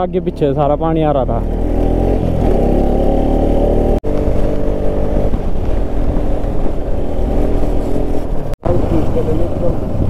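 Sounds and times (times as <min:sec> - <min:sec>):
motorcycle engine cruising: 0:00.0 - 0:10.0
wind rumble on microphone: 0:04.1 - 0:10.0.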